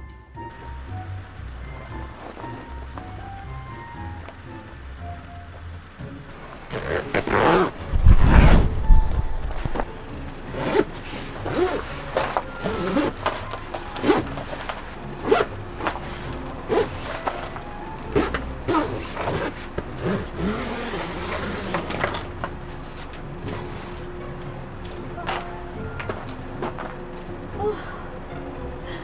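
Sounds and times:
quiet background music: 0.0 - 29.0
rasping scraping handling sounds: 10.5 - 24.2.

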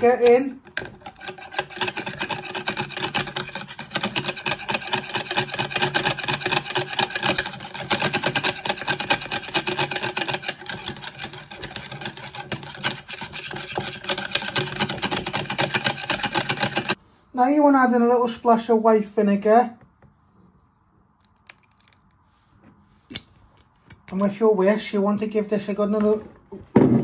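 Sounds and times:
whisk clicking and scraping bowl: 0.0 - 17.0.

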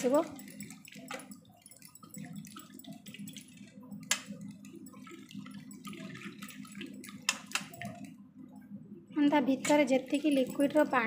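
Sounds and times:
water bubbling in a pan: 0.0 - 11.0.

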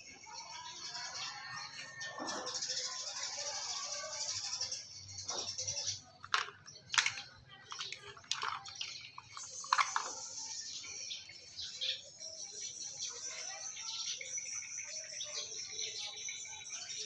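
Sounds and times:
mussel shells cracking: 6.2 - 10.4.

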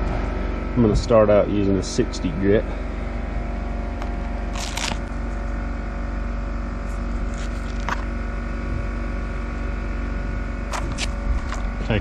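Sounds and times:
engine hum: 0.0 - 12.0
plastic pack crinkling: 4.5 - 5.1.

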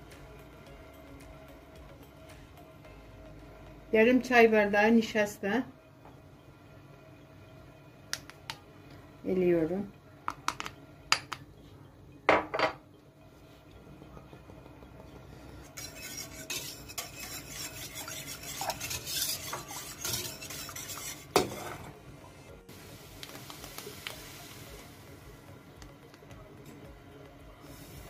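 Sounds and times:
whisk scraping and clinking in pot: 15.6 - 21.9.

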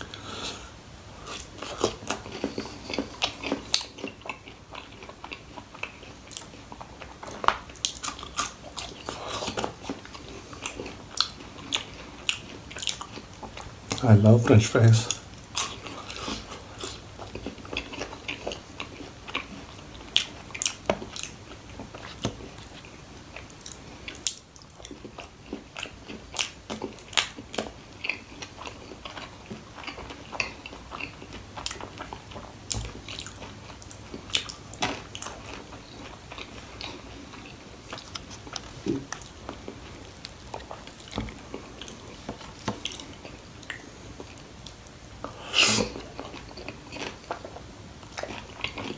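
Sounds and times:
person crunching fried food: 1.2 - 13.6, 15.1 - 48.9
wet chewing: 1.2 - 14.0, 15.1 - 48.9.

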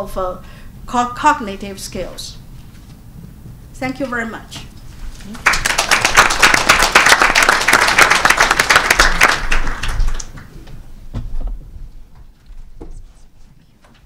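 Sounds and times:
audience applauding: 5.3 - 10.7.

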